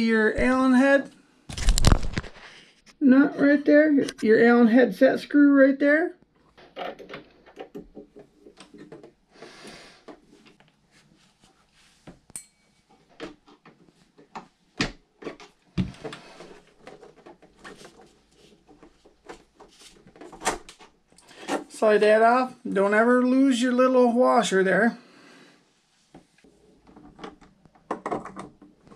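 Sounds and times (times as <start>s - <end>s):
brief rustle: 1.5s - 2.9s.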